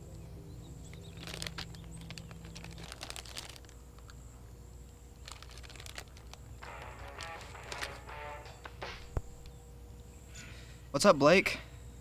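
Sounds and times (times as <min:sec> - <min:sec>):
bread crackling while eaten: 0:00.8 - 0:08.2.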